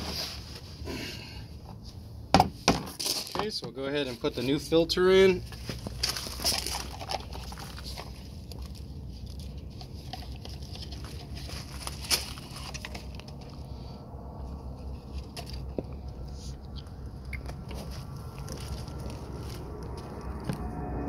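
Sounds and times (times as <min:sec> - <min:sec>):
steady low hum: 0:05.3 - 0:21.0
paper filter rustling: 0:05.4 - 0:13.8, 0:14.4 - 0:20.1.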